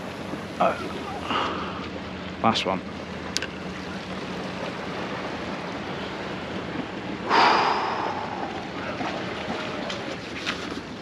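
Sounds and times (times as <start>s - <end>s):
sudden loud rush: 7.3s - 8.8s
wind on microphone: 7.3s - 9.9s.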